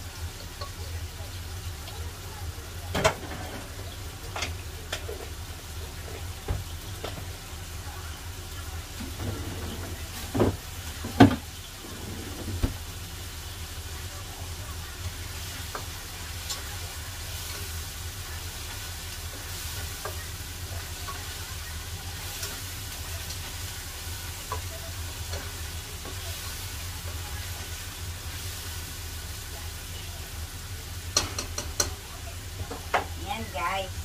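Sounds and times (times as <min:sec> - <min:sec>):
food sizzling in oil: 0:00.0 - 0:34.0.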